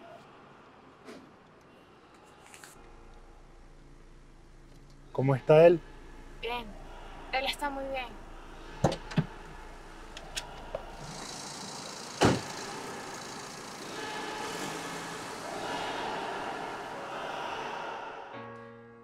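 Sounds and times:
car engine and tyre noise: 0.0 - 18.1
car door clunking shut: 12.0 - 12.8
loud thump: 12.2 - 12.5.

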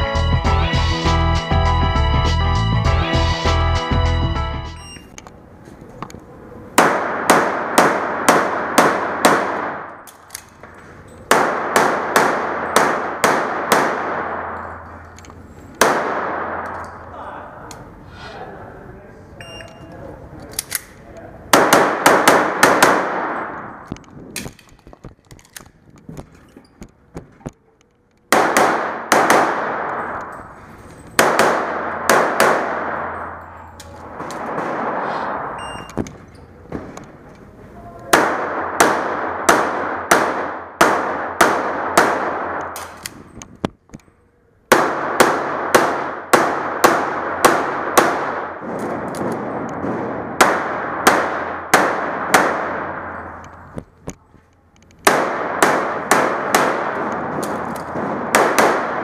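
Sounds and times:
rapid pistol shots: 6.8 - 10.0, 11.3 - 14.6, 15.8 - 16.8, 21.5 - 23.9, 28.3 - 30.3, 31.2 - 33.4, 34.1 - 35.6, 38.1 - 43.0, 44.7 - 53.7, 55.0 - 59.0.

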